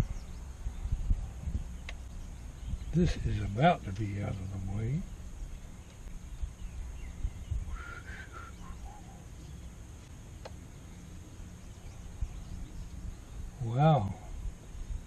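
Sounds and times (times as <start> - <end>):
low rumble: 0.0 - 15.0
faint bird call: 7.0 - 9.7.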